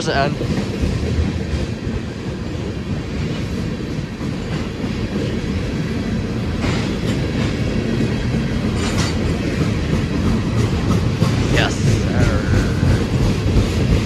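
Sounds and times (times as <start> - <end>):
rumble of train wheels on rails: 0.0 - 14.0
train wheel clicks: 0.0 - 14.0.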